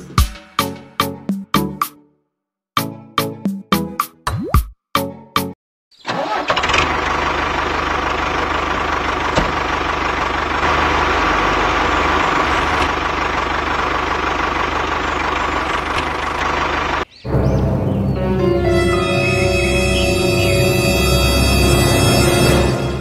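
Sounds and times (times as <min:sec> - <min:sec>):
tractor engine running: 0:06.1 - 0:23.0.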